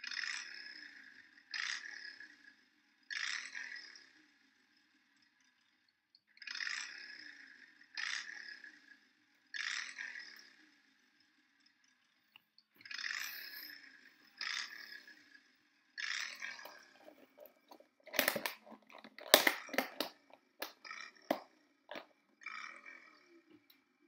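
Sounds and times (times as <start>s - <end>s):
plastic lid clicking and snapping: 18.1s - 22.0s.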